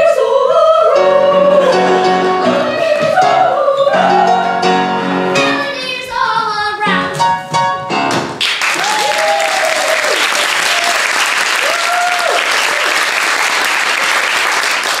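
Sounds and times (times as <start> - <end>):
audience applauding: 8.4 - 15.0
voices cheering in whoops: 8.8 - 13.0.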